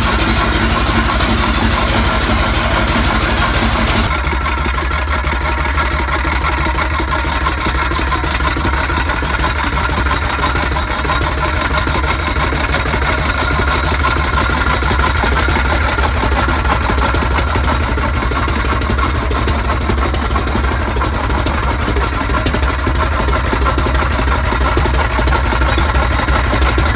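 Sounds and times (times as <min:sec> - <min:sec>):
engine running steadily: 0:00.0 - 0:26.9.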